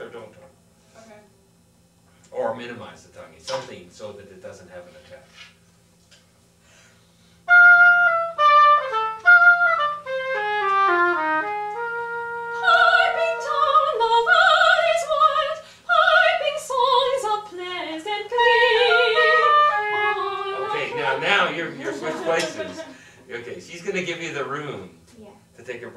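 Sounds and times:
clarinet: 7.4 - 15.0, 18.3 - 23.0
oboe: 7.5 - 15.2, 18.3 - 23.0.

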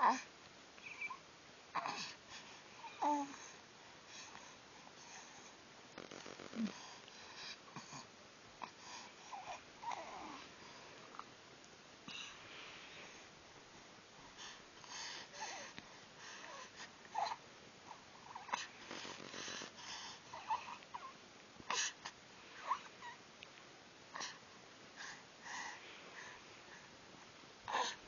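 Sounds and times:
baby grunting and cooing: 1.8 - 2.2.

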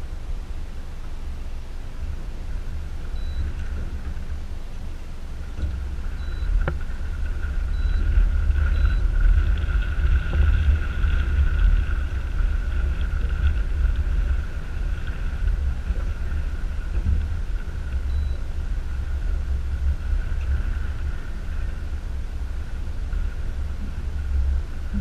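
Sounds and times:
wind buffeting microphone: 1.2 - 25.0.

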